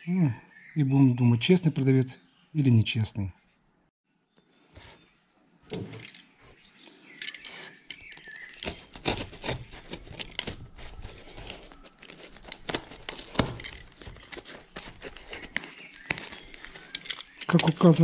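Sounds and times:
utility knife cutting plastic wrap: 7.4s - 18.0s
plastic wrap crinkling: 8.0s - 18.0s
tape snapping: 8.0s - 18.0s.

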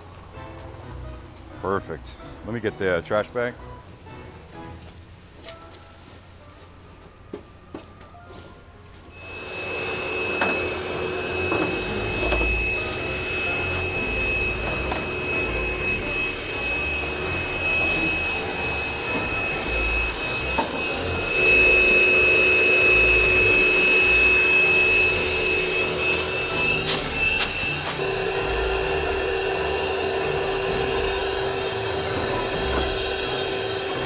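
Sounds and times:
hiss: 3.9s - 5.4s
small motor whining: 9.1s - 34.0s.

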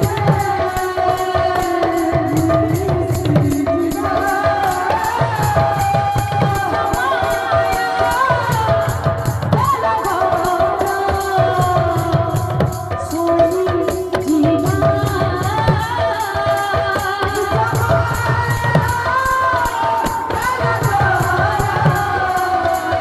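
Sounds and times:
hand-played barrel drum: 0.0s - 23.0s.

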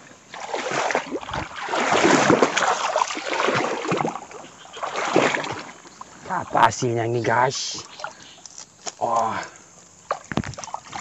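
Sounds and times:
water sloshing from wading: 0.0s - 11.0s.

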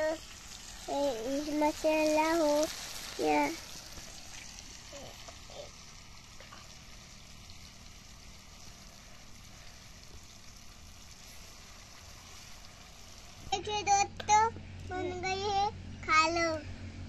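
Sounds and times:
curry sizzling in a pan: 0.0s - 15.6s.

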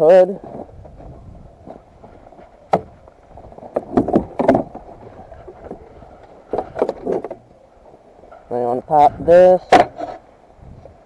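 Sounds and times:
hood clunking and rattling: 0.4s - 7.6s.

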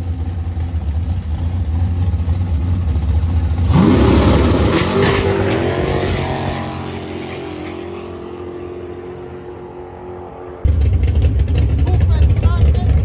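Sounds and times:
loud low engine running close: 0.0s - 7.4s, 10.6s - 13.0s
drag race car engine pulling away: 0.0s - 13.0s.

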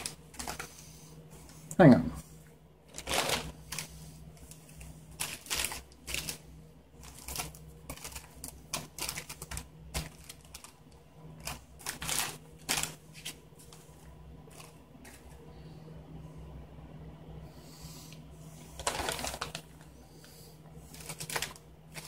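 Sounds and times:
foil and plastic packets crinkling: 0.0s - 0.8s, 2.9s - 13.8s, 18.8s - 19.9s, 20.8s - 22.0s.

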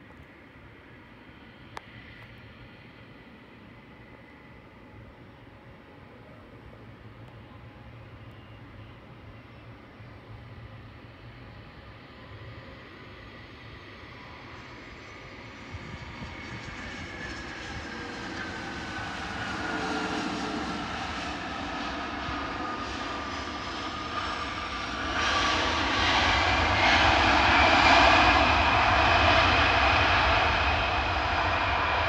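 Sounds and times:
jet engines whining: 11.5s - 32.0s
loud rush of jet noise: 15.6s - 32.0s.

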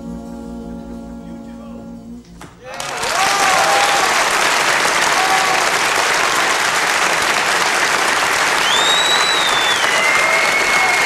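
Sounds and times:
faint crowd calls: 2.6s - 6.4s, 8.3s - 11.0s
audience applauding: 2.6s - 11.0s.

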